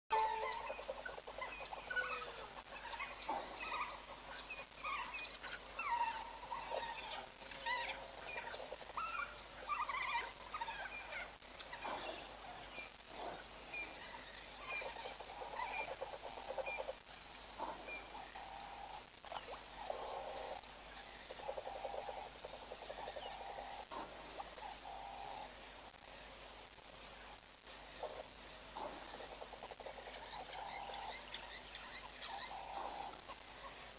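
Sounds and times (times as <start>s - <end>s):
faint animal calls: 0.1s - 25.9s, 26.5s - 33.9s
insect chirping: 7.8s - 33.9s.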